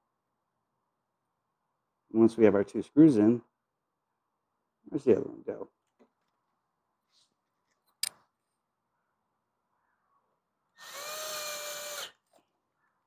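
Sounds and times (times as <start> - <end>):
sharp click: 7.9 - 8.2
screw gun motor whining: 10.8 - 12.4.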